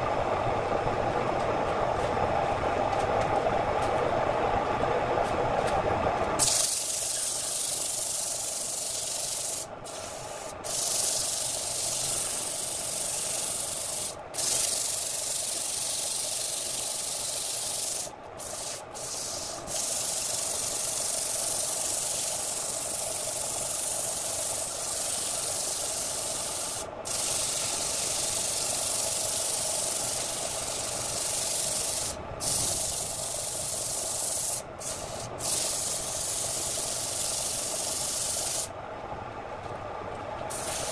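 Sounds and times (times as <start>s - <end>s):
sandpaper hissing on turning wood: 6.4s - 38.7s, 40.5s - 40.9s.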